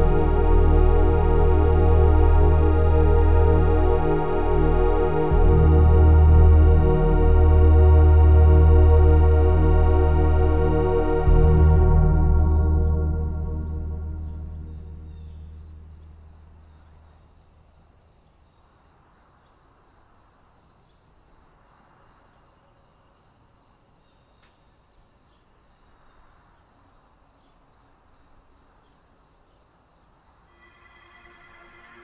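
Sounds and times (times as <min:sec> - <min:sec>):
soft ambient music: 0:00.0 - 0:17.1, 0:30.5 - 0:32.0
crickets chirping: 0:11.2 - 0:32.0.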